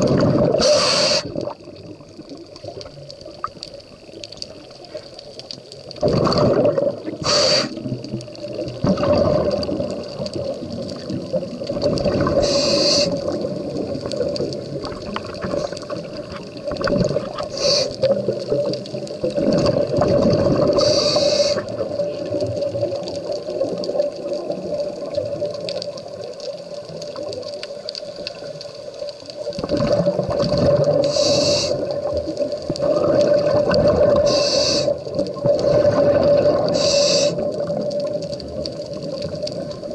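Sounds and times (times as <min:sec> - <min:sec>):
exhaled bubbles rushing: 0:00.0 - 0:04.9, 0:05.8 - 0:39.9
regulator hiss on inhale: 0:00.6 - 0:01.6, 0:07.2 - 0:08.0, 0:12.2 - 0:13.5, 0:17.4 - 0:18.2, 0:20.6 - 0:22.2, 0:30.9 - 0:32.2, 0:34.0 - 0:35.9, 0:36.5 - 0:37.6.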